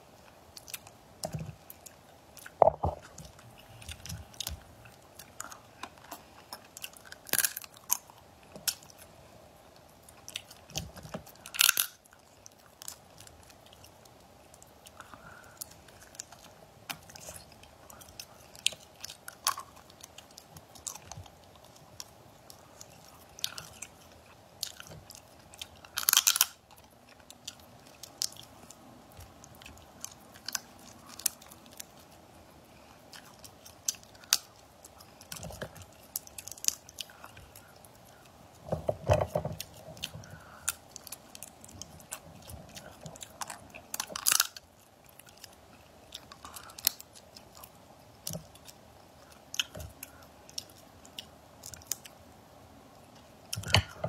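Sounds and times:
chewing and biting: 9.8s - 52.2s
crab shell cracking: 10.5s - 13.3s, 24.8s - 26.6s.

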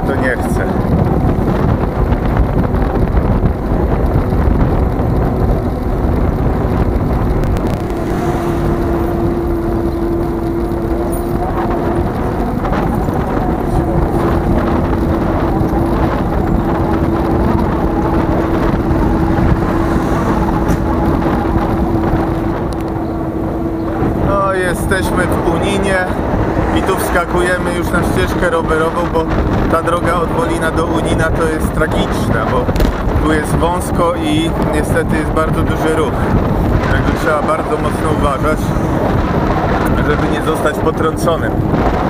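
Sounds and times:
traffic and ride rumble: 0.0s - 42.0s
steady hum: 1.3s - 29.7s.

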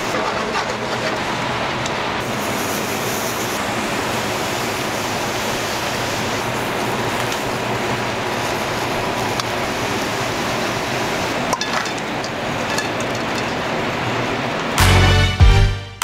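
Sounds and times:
grill sizzling: 0.0s - 15.4s
metal tongs and plates clinking: 11.5s - 13.7s.

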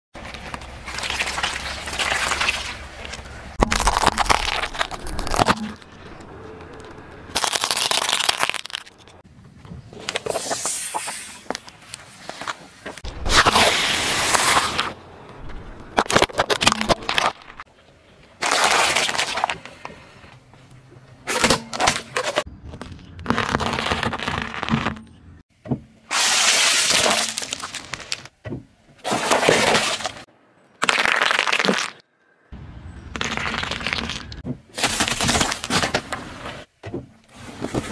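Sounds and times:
tyre crushing plastic containers: 15.5s - 17.6s, 26.2s - 28.3s, 29.0s - 30.2s, 33.3s - 36.6s.

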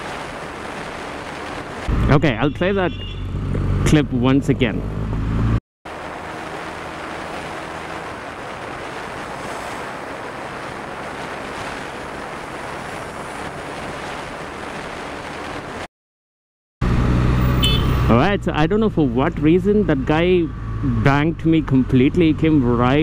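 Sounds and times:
wind rushing on microphone: 0.0s - 2.8s, 5.9s - 15.9s
faint motorcycle engine: 16.9s - 23.0s.

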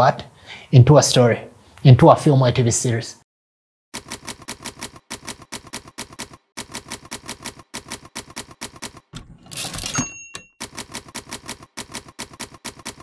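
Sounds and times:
typewriter keys clicking: 4.0s - 13.0s
typewriter rasp: 4.0s - 13.0s.

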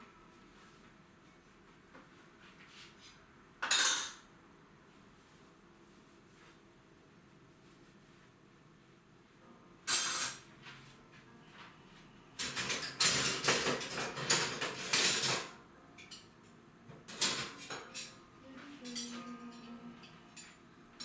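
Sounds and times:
dishes and cutlery clattering: 3.6s - 4.2s, 9.9s - 10.5s, 12.4s - 16.4s, 17.0s - 18.2s, 18.8s - 20.6s.

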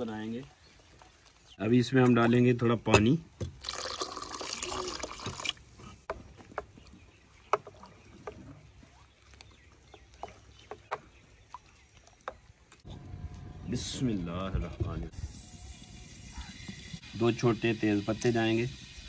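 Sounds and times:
water poured into batter: 3.6s - 5.6s.

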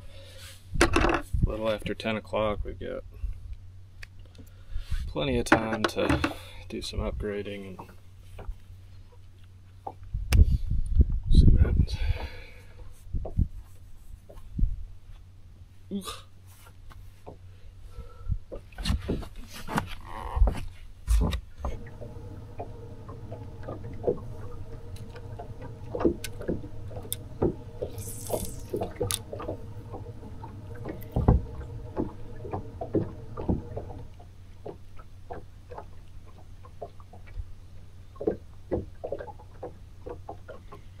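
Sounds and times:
electric trolling motor humming: 21.6s - 34.4s
light knocks on boat: 28.8s - 34.1s.

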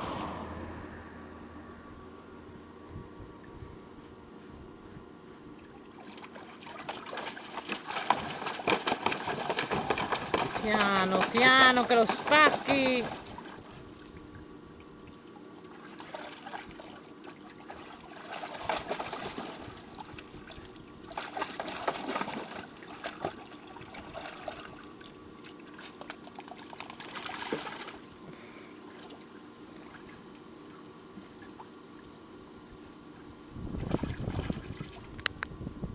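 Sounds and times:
steady hum: 0.0s - 35.9s
dog splashing water in tub: 5.6s - 28.2s, 33.8s - 35.0s.

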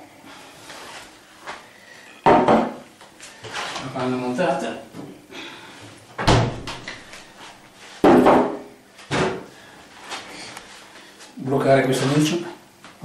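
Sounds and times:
refrigerator door shutting: 6.2s - 6.8s.

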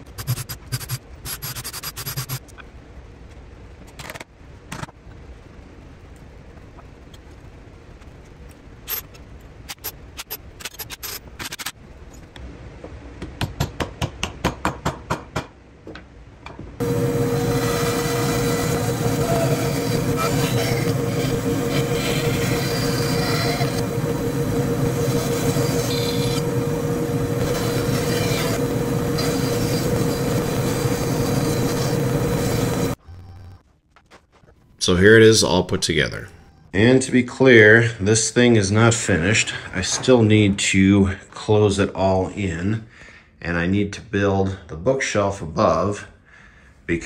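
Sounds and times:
saw rasping through plywood: 16.8s - 32.9s
band saw humming: 16.8s - 33.0s.

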